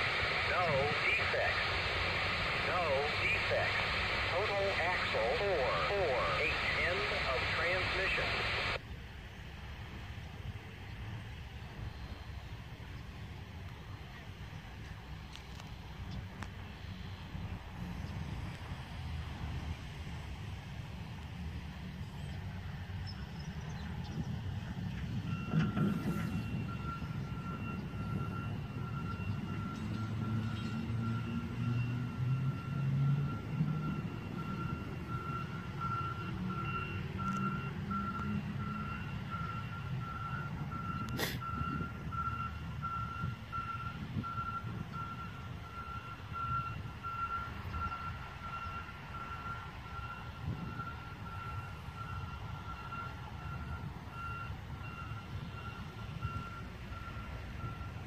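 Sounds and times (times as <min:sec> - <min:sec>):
railroad crossing bell beeping: 0:25.2 - 0:58.0.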